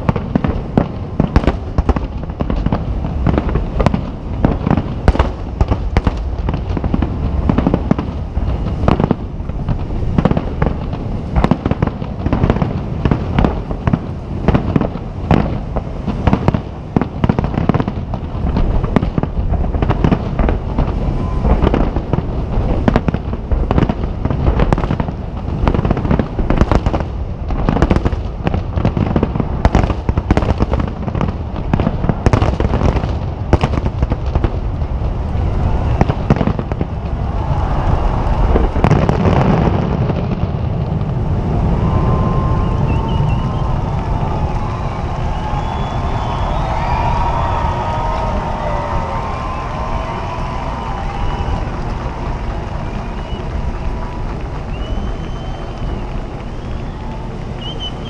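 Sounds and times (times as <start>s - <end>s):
low rumble: 33.2s - 57.7s
firework shells bursting: 49.2s - 58.0s.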